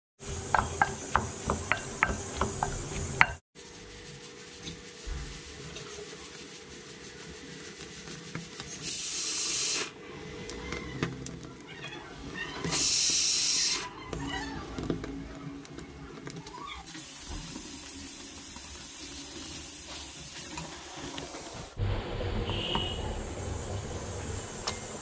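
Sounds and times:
gas flame hissing: 6.9s - 11.4s, 12.6s - 13.9s, 16.8s - 25.0s
loud bursts of hiss: 8.8s - 10.0s, 12.7s - 13.8s.

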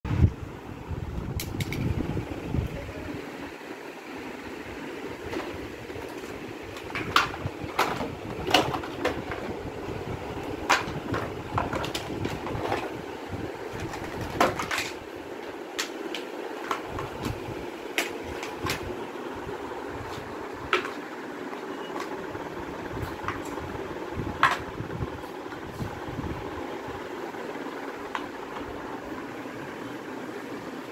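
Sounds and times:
steady background hum: 0.1s - 30.9s
plastic parts knocking: 5.3s - 9.6s, 10.6s - 13.0s, 13.7s - 15.0s, 24.4s - 24.7s.

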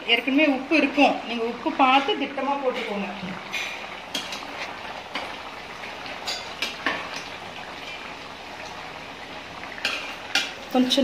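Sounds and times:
ladle stirring in metal pot: 1.8s - 8.7s, 9.6s - 10.8s.

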